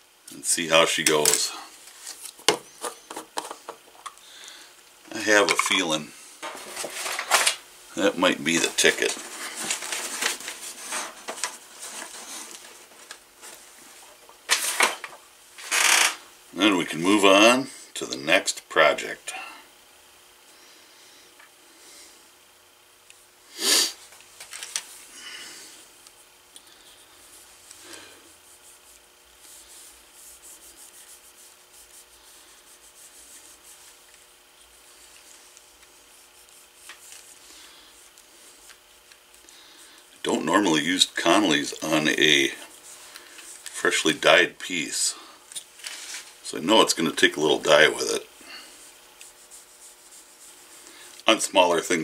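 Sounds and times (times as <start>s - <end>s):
cloth rag rubbing leather: 27.0s - 38.7s, 47.6s - 51.1s.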